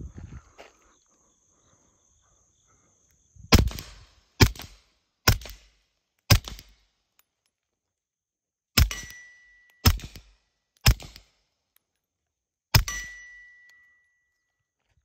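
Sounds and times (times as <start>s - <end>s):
suppressed pistol shots: 3.5s - 6.9s, 8.8s - 11.4s.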